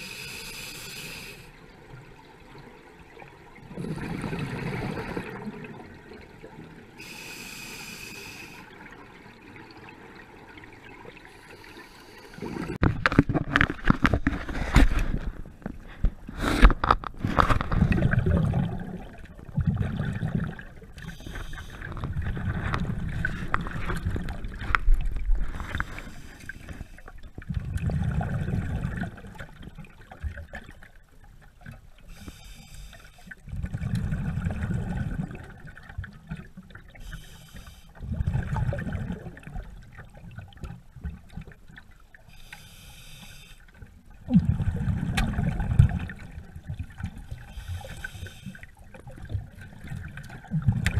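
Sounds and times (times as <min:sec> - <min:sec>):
regulator inhale hiss: 0:00.0 - 0:01.5, 0:07.0 - 0:08.7, 0:11.3 - 0:12.7, 0:21.1 - 0:21.9, 0:32.1 - 0:33.4, 0:37.0 - 0:38.0, 0:42.3 - 0:43.7, 0:47.5 - 0:48.6
exhaled bubbles gurgling: 0:03.3 - 0:07.3, 0:16.8 - 0:30.8, 0:33.4 - 0:37.2, 0:38.0 - 0:41.9, 0:43.9 - 0:50.9.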